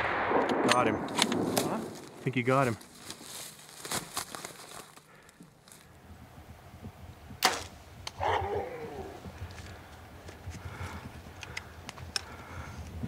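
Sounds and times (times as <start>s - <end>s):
gunshot: 0.0s - 2.0s.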